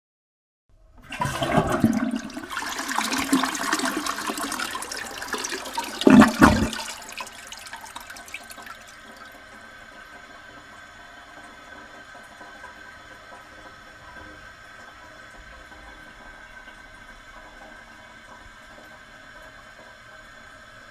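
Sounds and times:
toilet flushing: 0:00.8 - 0:20.9.

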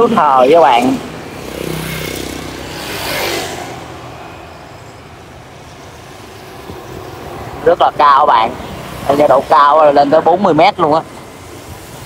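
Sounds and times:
traffic hum: 0:00.0 - 0:12.0
vehicle passing close by: 0:00.6 - 0:04.7.

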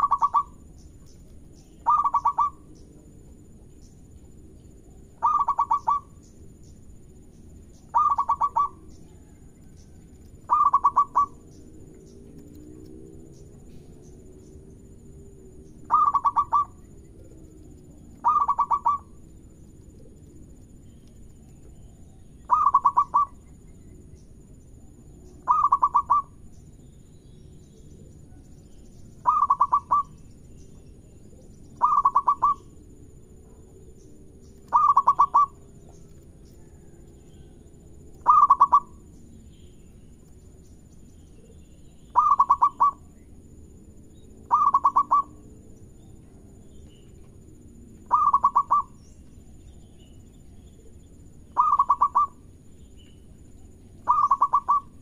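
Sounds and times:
dove cooing: 0:00.0 - 0:00.6, 0:01.8 - 0:02.7, 0:05.0 - 0:06.2, 0:07.9 - 0:09.4, 0:10.5 - 0:11.6, 0:15.9 - 0:19.3, 0:22.5 - 0:23.5, 0:25.4 - 0:26.4, 0:29.2 - 0:30.2, 0:31.3 - 0:33.6, 0:34.7 - 0:35.8, 0:38.2 - 0:39.1, 0:42.1 - 0:43.1, 0:44.5 - 0:45.5, 0:48.0 - 0:49.0, 0:51.6 - 0:52.4, 0:54.0 - 0:55.0.

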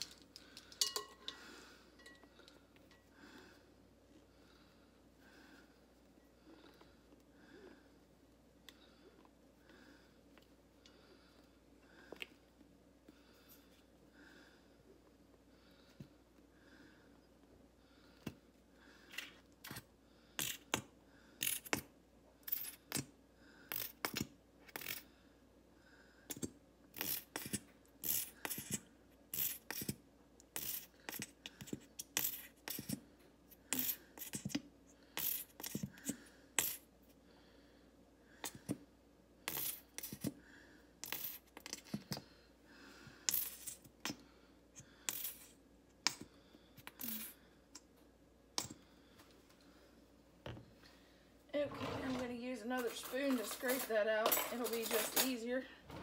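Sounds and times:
metal spoons clinking and scraping: 0:00.0 - 0:03.1, 0:51.8 - 0:55.6.

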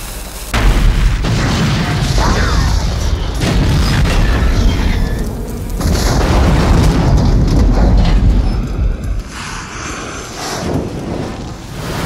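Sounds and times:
fireball rumble: 0:00.0 - 0:12.0
explosion boom: 0:00.6 - 0:09.3.

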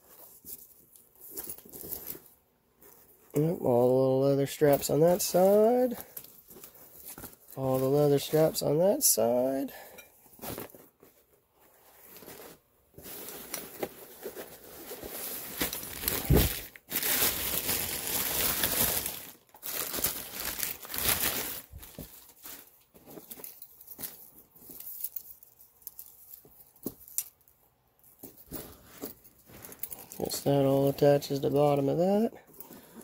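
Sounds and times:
canvas rucksack rustling: 0:12.0 - 0:24.1.

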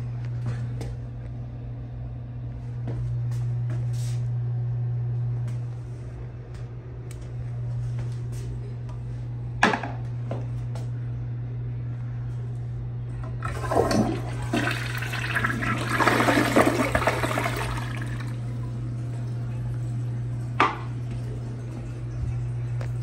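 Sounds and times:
steady low hum: 0:00.0 - 0:23.0
toilet flushing: 0:13.2 - 0:23.0.

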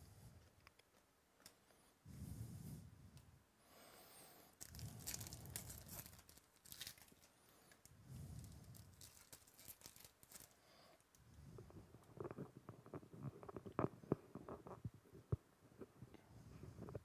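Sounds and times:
foil wrapper crinkling and tearing: 0:04.6 - 0:10.6.

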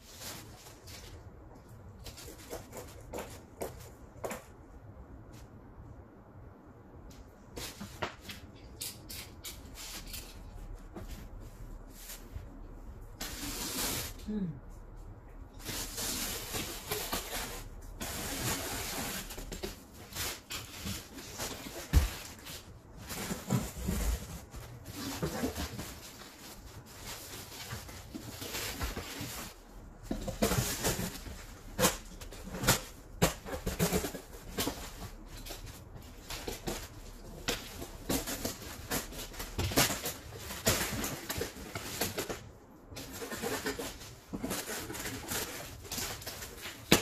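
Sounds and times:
cardboard scraping and rustling: 0:15.6 - 0:47.0.

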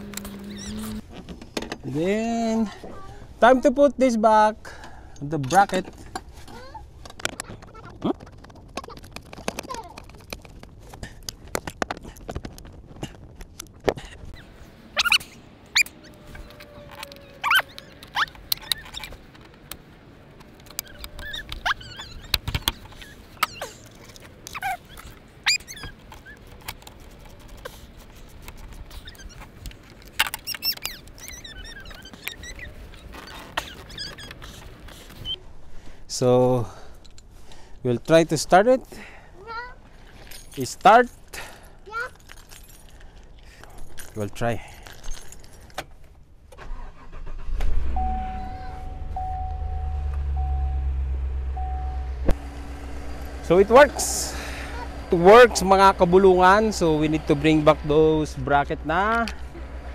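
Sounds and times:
thin high squeaks: 0:00.0 - 0:01.3, 0:14.3 - 0:19.3, 0:20.5 - 0:35.4, 0:46.6 - 0:58.1.

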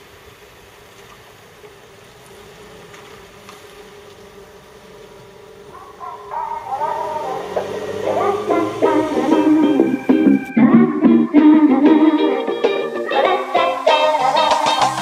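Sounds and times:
truck engine running: 0:05.5 - 0:11.3
guitar music: 0:06.5 - 0:15.0.

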